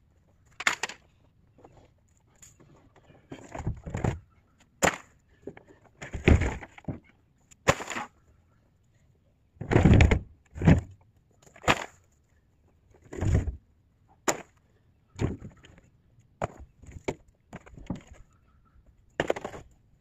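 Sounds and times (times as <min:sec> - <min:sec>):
scrap wood knocking and crashing: 0:06.0 - 0:07.0, 0:09.6 - 0:10.9, 0:19.2 - 0:19.7.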